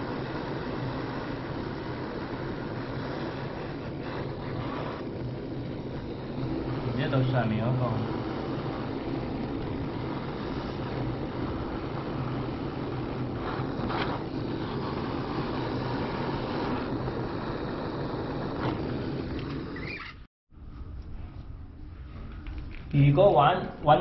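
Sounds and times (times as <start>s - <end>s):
blowtorch flame hissing: 0.0s - 20.3s.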